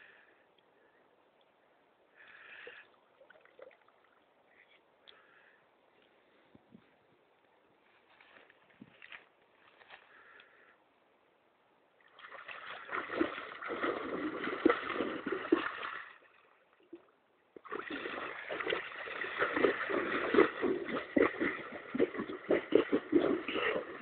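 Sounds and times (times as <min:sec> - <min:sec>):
horse pawing in shallow water: 0:12.2 - 0:16.3, 0:17.6 - 0:24.0.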